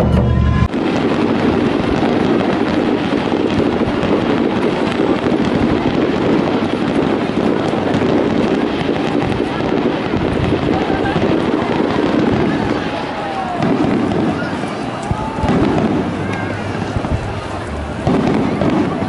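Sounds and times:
festival music: 0.0 - 2.6, 14.8 - 19.0
fireworks crackling: 0.0 - 19.0.

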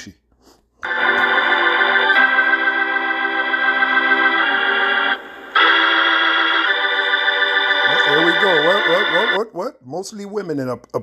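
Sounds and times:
organ playing held chords: 0.8 - 9.4.

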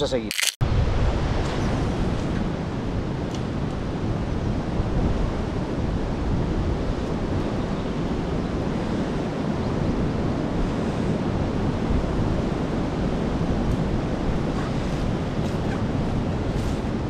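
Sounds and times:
wind buffeting microphone: 0.6 - 17.0.

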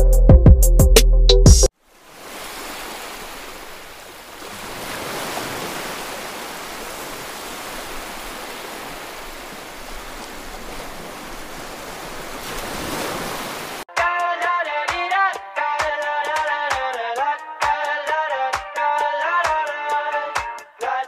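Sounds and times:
sea waves breaking on beach: 1.8 - 13.9.

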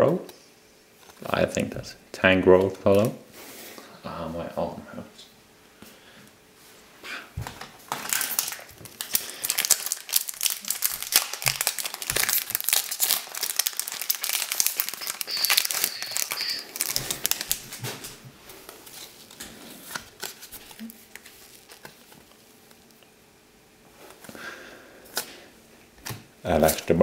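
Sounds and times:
foil wrapper crinkling: 7.9 - 23.1.

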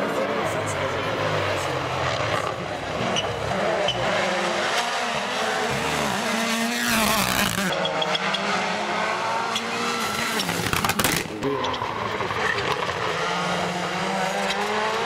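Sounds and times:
rally car engines revving: 0.0 - 15.0.

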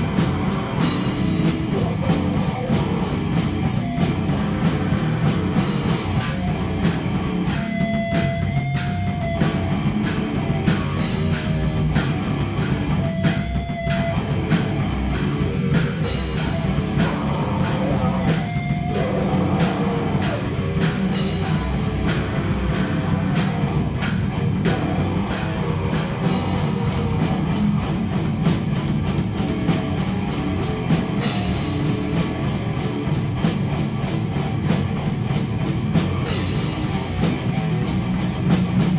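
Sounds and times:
distorted electric guitar: 0.0 - 38.9
drum kit beat: 0.0 - 38.9.

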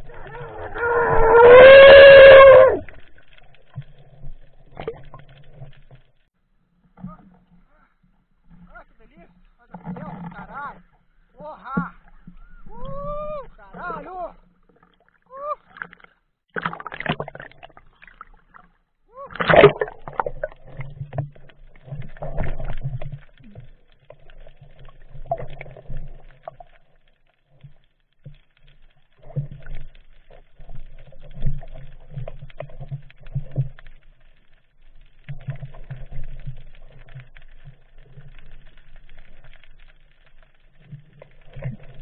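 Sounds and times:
loud water splash: 19.2 - 20.8.

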